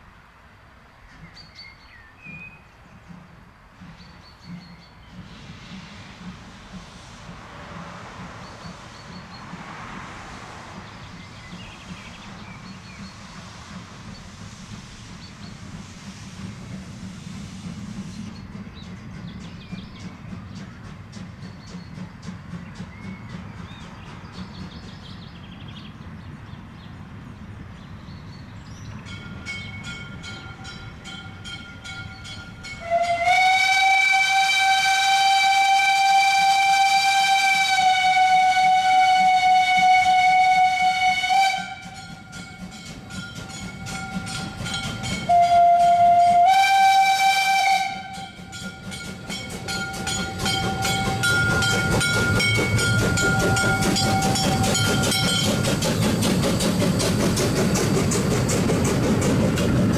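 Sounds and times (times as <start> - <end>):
train rhythmic beat: 2.3 - 59.9
steam whistle blast: 32.6 - 42.2, 45.2 - 48.6.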